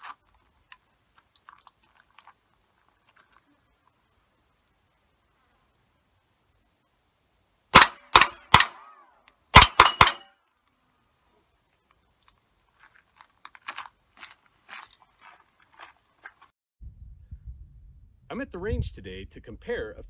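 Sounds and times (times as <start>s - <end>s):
suppressed rifle shots: 7.7s - 10.2s
steel target ringing: 7.8s - 9.0s, 9.6s - 10.3s.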